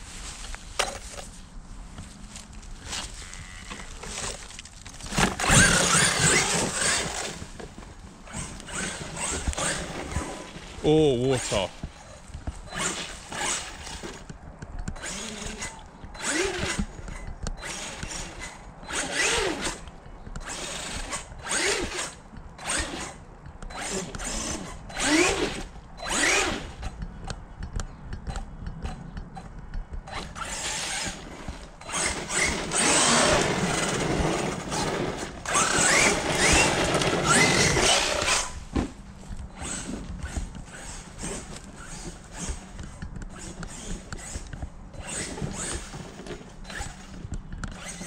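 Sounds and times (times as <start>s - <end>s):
toy truck electric motor whining: 2.9s - 7.5s, 8.3s - 10.6s, 12.7s - 14.2s, 15.0s - 27.0s, 30.1s - 38.6s, 39.5s - 48.0s.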